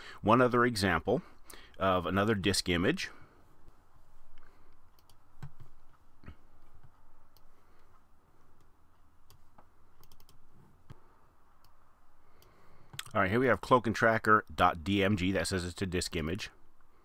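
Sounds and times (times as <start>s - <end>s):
computer mouse and keyboard clicks: 4.4s - 6.0s, 8.6s - 11.0s.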